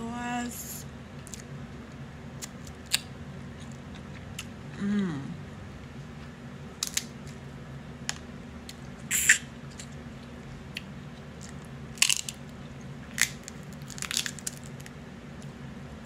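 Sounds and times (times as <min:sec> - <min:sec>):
crab shells cracking: 0:06.8 - 0:07.4, 0:11.4 - 0:12.5, 0:13.1 - 0:15.0.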